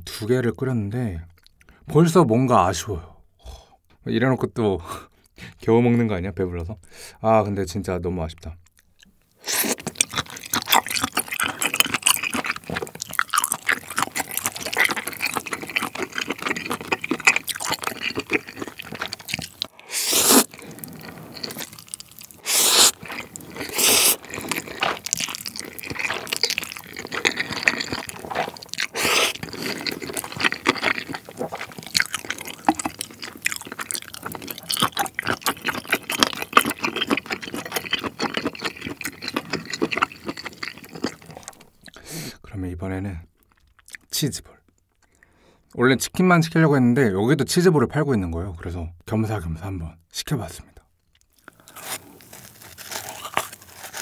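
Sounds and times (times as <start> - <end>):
wet chewing: 8.7 - 42.0, 51.1 - 54.0
slurping noodles: 9.4 - 41.6.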